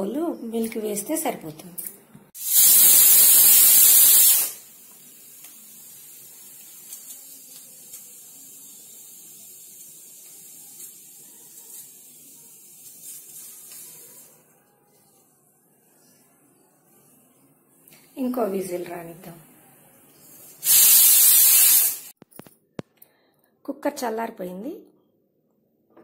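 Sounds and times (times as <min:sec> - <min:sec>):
quiet steady steam hiss: 0:02.3 - 0:15.0, 0:16.9 - 0:22.2
pressure cooker whistle steam jet: 0:02.4 - 0:04.7, 0:20.6 - 0:22.1.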